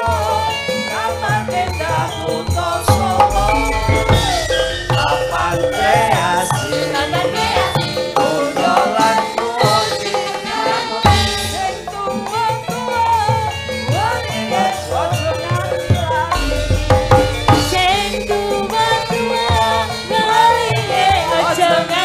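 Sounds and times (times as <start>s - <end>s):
drums: 0.0s - 22.0s
gamelan: 0.0s - 22.0s
man singing: 0.0s - 22.0s
woman singing: 0.0s - 22.0s
deep bass note: 2.9s - 7.4s, 16.4s - 19.9s.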